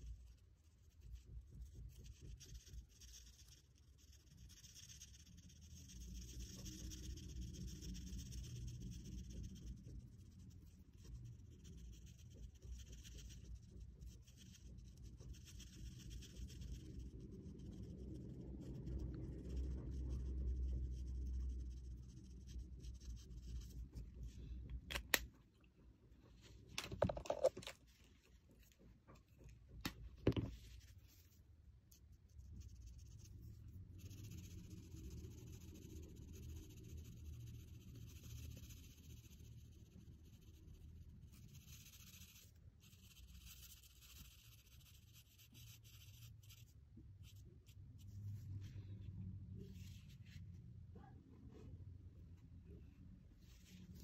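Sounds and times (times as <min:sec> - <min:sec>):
marker scratching on paper: 0:00.0 - 0:24.5, 0:32.3 - 0:46.7
marker cap clicks: 0:24.9 - 0:25.3.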